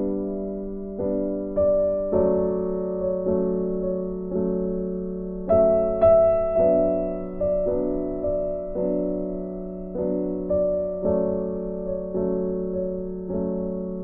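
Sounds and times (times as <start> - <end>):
gentle piano chords: 0.0 - 14.0.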